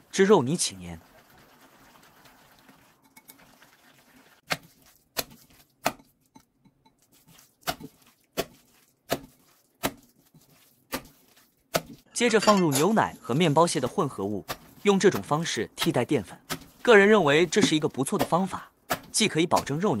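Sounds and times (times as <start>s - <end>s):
hand mixing meat in bowl: 0.1s - 12.1s, 13.3s - 20.0s
hand slapping meat: 4.4s - 6.2s, 7.1s - 12.0s.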